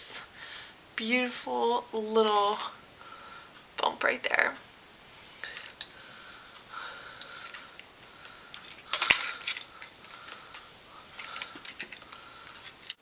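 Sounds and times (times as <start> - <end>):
flat iron clicks and rustling: 7.2 - 13.0.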